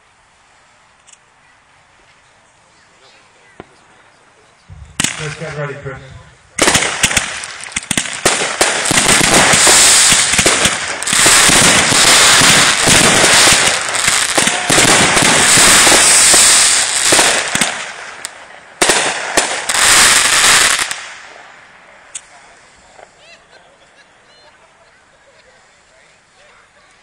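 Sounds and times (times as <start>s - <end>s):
fireworks launches and bursts: 4.7s - 23.2s.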